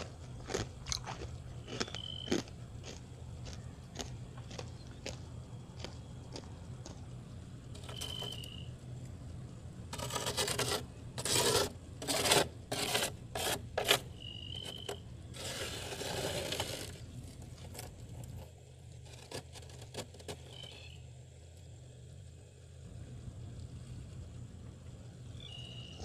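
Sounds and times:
fingers scraping frost: 9.9s - 20.8s.

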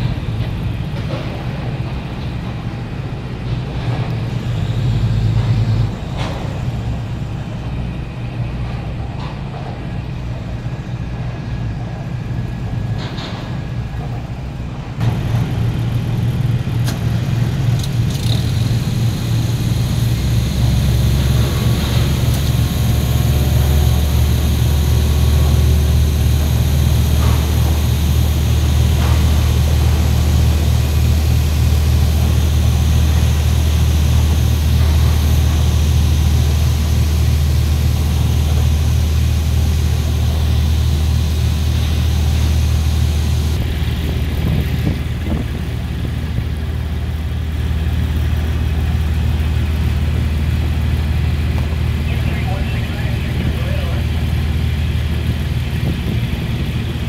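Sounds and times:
low engine rumble: 0.0s - 57.0s.

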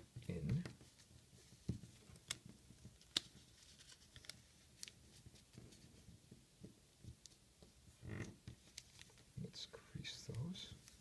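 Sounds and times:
paper rustling: 0.8s - 6.1s, 8.6s - 9.3s
paper crackles: 2.2s - 6.0s.

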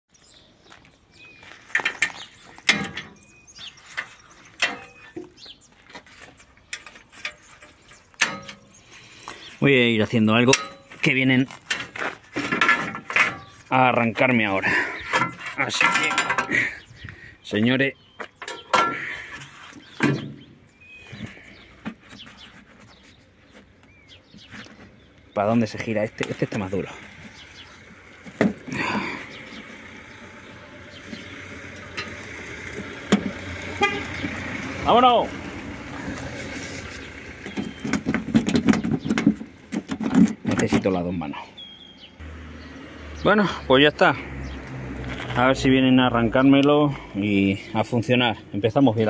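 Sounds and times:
metal plates clanking: 1.8s - 3.3s, 3.9s - 5.3s, 6.8s - 8.8s, 10.3s - 13.7s, 14.7s - 16.8s, 25.5s - 35.3s.

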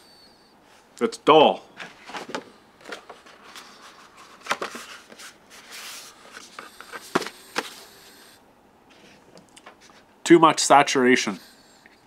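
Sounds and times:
paper cards rustling: 1.8s - 7.9s.

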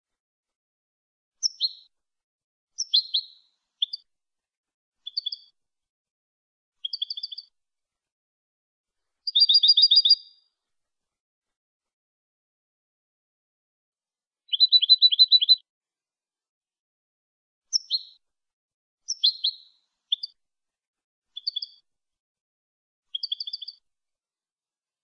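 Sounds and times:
goldfinch singing: 9.3s - 10.3s, 14.5s - 15.6s, 19.1s - 20.3s.

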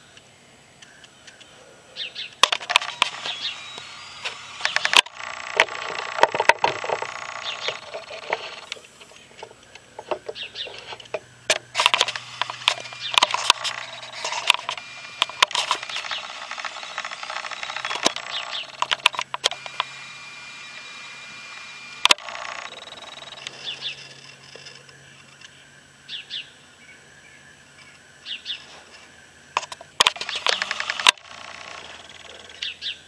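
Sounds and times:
small birds chirping: 0.0s - 5.2s, 7.0s - 33.0s
sharp clicks and ticks: 2.3s - 10.4s, 11.0s - 23.6s, 29.6s - 32.7s.

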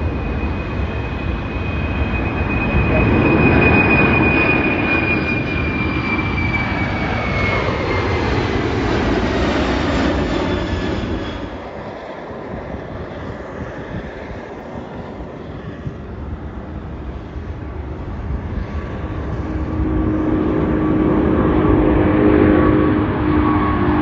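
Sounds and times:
jet engine whine: 0.0s - 24.0s
jet engines roaring: 0.0s - 24.0s.

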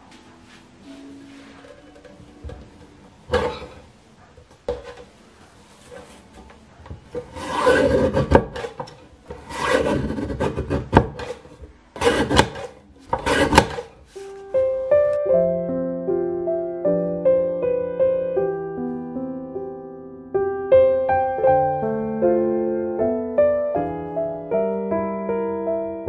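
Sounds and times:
paper cutter blade rasping cuts: 7.1s - 14.0s.

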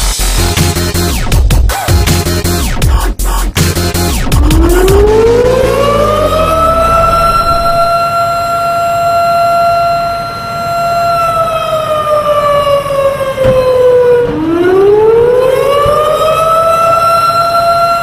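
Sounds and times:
fire truck siren wailing: 4.0s - 18.0s.

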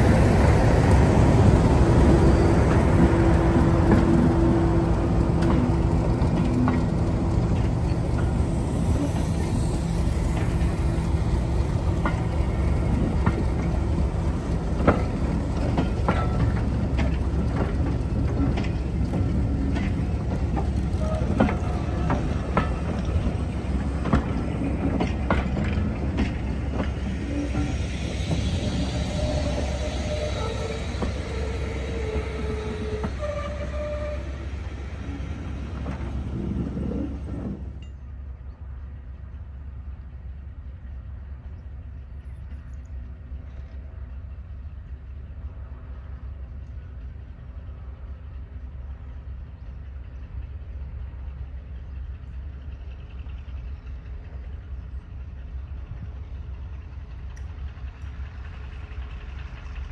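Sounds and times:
wheels clicking over track: 0.0s - 38.0s
train engine drone: 0.0s - 59.9s
high squealing tones: 27.0s - 35.4s.

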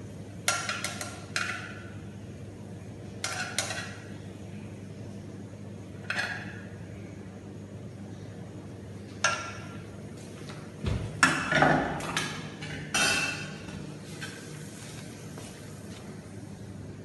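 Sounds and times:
steady low hum: 0.0s - 17.0s
metal kitchenware clanking: 11.2s - 13.8s.

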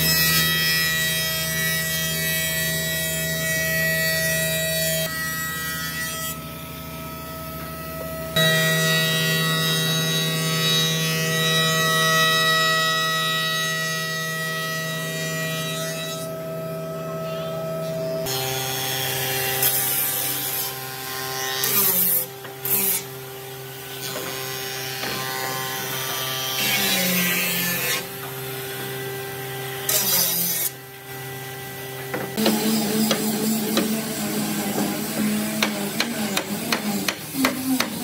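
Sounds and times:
shop machine hum: 30.9s - 38.0s.

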